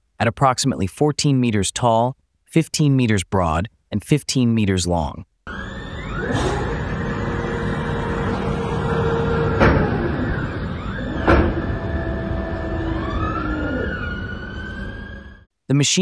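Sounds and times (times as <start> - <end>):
electric drives whining: 5.5 - 15.5.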